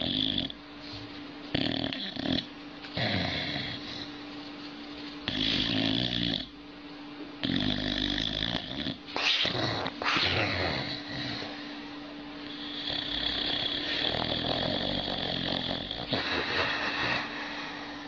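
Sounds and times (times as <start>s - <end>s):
dog snoring: 0.0s - 0.6s, 1.5s - 4.2s, 5.2s - 6.6s, 7.4s - 11.8s, 12.4s - 17.9s.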